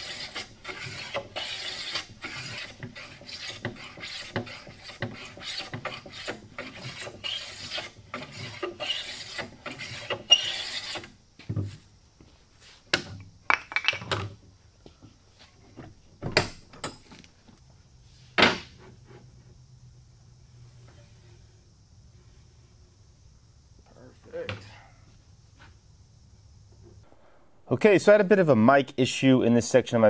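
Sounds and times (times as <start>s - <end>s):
hand plane shaving wood: 0.0s - 11.1s
clicks and knocks of wood and tools: 12.9s - 17.7s.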